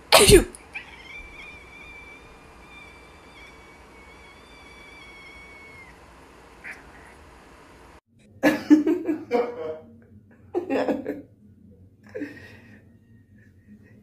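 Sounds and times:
person laughing: 10.6 - 11.2.

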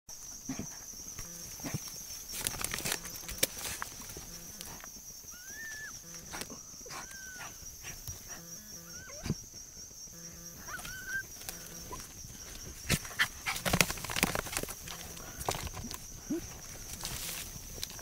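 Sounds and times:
dog whining: 6.8 - 7.6, 8.3 - 9.4, 10.6 - 11.3
dogs snuffling and scrabbling: 10.6 - 18.0.

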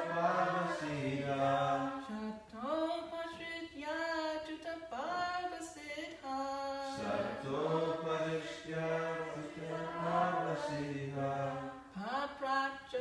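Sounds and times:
group chanting together: 0.0 - 2.3, 6.9 - 12.0
woman chanting: 0.6 - 7.4, 11.4 - 13.0.

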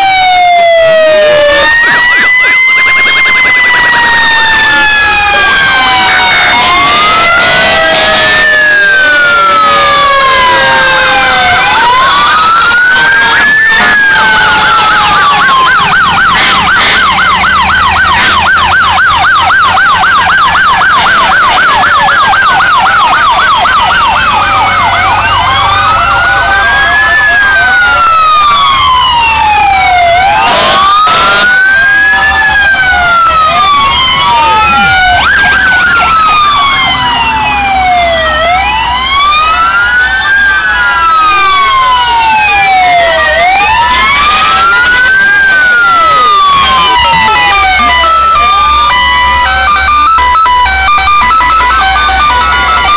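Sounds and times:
fire engine sirens: 0.0 - 52.9
truck engines rumbling: 0.0 - 52.9.

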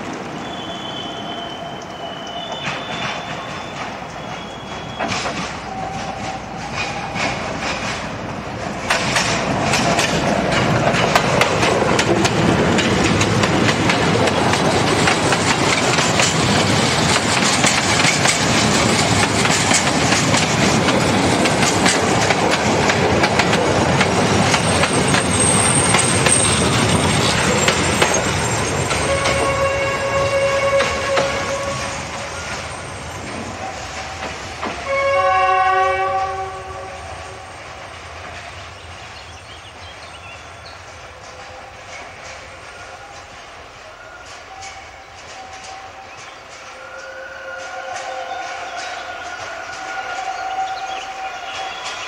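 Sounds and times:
diesel locomotive approaching: 0.0 - 52.0
train wheels clattering over joints: 2.5 - 36.5, 37.4 - 50.7.

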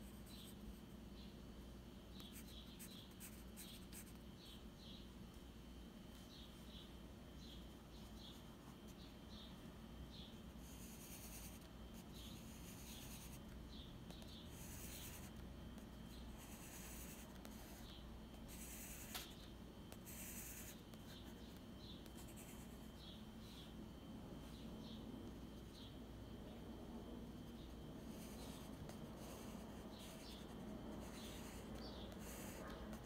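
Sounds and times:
pencil scratching on paper: 2.2 - 4.2, 10.6 - 13.4, 14.3 - 15.4, 16.4 - 21.4, 28.0 - 33.0.

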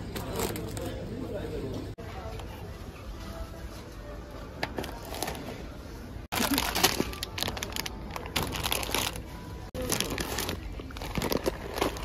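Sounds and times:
plastic packaging crinkling: 6.3 - 12.0.

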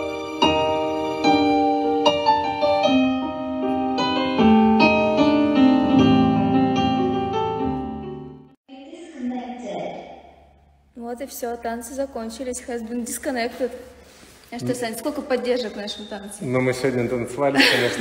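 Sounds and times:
slow piano music: 0.0 - 8.6.

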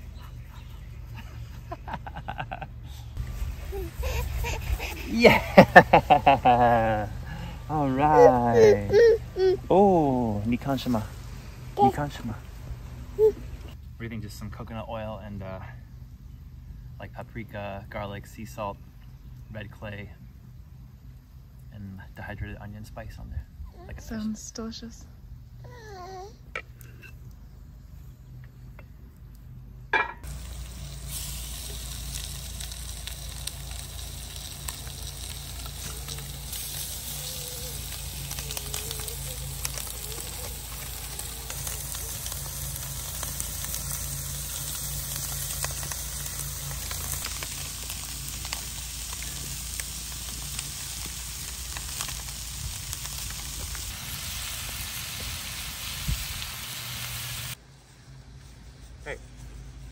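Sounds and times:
fish sizzling in a skillet: 30.2 - 57.6
crackling pops: 30.3 - 54.0.

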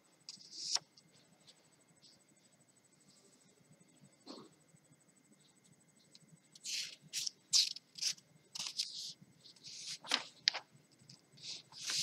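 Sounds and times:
book pages rustling: 7.2 - 10.6, 11.5 - 12.0.

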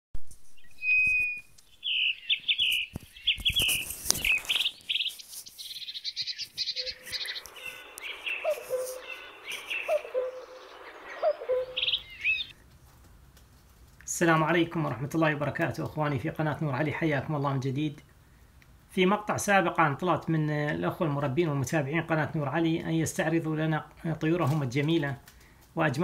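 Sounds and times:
lower bird call: 0.5 - 12.6
small birds chirping and trilling: 0.6 - 12.9
sharp clicks: 6.6 - 9.9.

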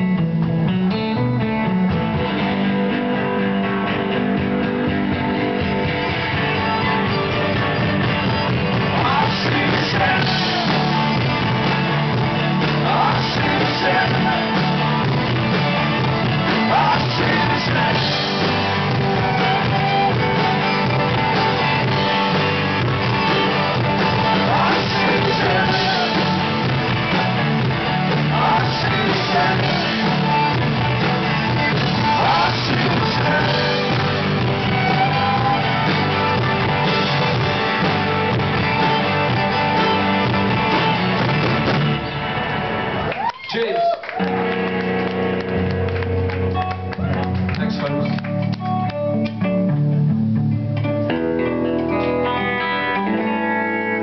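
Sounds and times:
live rock band playing: 0.0 - 54.0
person singing: 8.8 - 22.4, 23.1 - 27.1, 27.7 - 30.7, 31.5 - 36.3.

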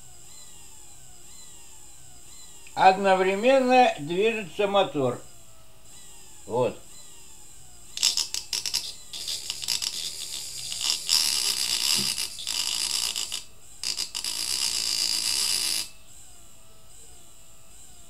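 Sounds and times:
electric motor crackling hiss: 7.6 - 16.3.

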